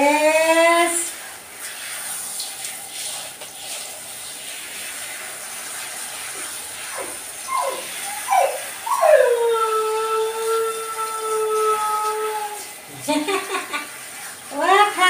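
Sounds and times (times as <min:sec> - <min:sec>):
shower head spraying water: 0:00.0 - 0:15.0
dog whining: 0:06.9 - 0:12.7.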